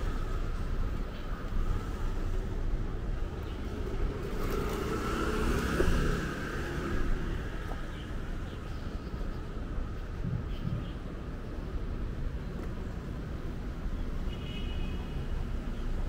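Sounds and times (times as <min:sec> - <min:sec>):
steady low traffic rumble: 0:00.0 - 0:16.0
vehicle passing by: 0:04.0 - 0:07.5.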